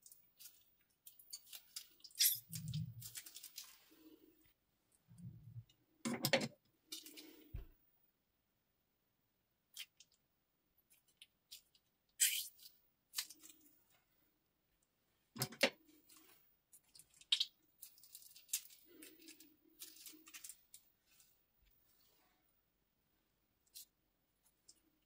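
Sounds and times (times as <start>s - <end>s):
plastic bag crinkling: 0.3s - 4.2s, 17.8s - 21.2s.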